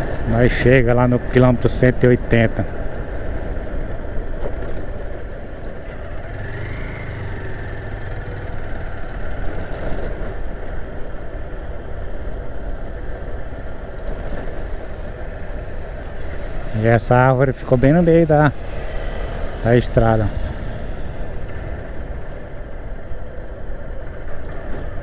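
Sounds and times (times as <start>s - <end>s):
wind and road noise: 0.0s - 25.0s
motorcycle engine running: 5.3s - 10.9s.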